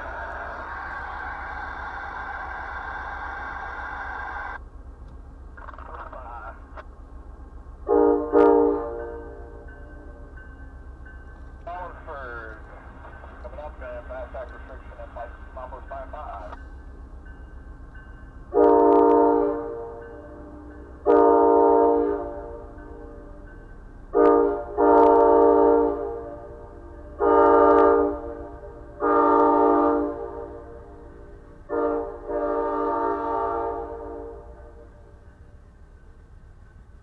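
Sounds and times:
train rumbling: 0.0 - 37.0
train air horn: 7.9 - 9.6, 18.5 - 23.4, 24.1 - 35.1.

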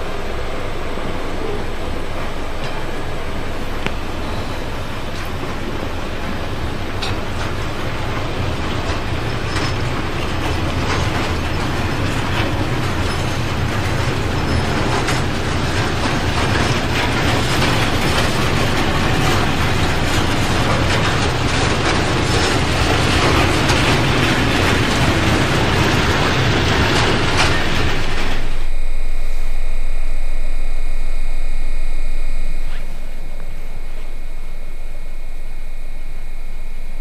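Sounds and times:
freight wagons rumbling on rails: 0.0 - 28.7
wheels clicking and clattering: 0.0 - 28.7.

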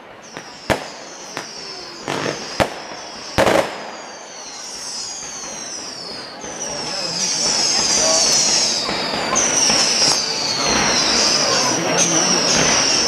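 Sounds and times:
firework shells bursting: 0.0 - 6.8
firework whistles gliding down: 0.0 - 13.0.

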